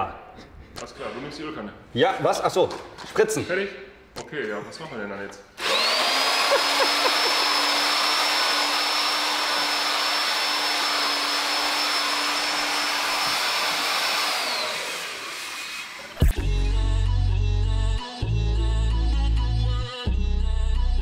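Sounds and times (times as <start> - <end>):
shop machine motor whining: 5.6 - 16.6.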